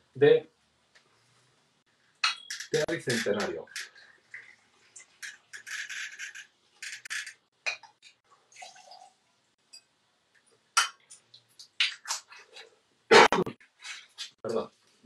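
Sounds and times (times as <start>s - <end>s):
clinks of glass and metal: 2.2s - 2.8s
liquid pouring and splashing: 8.4s - 9.3s.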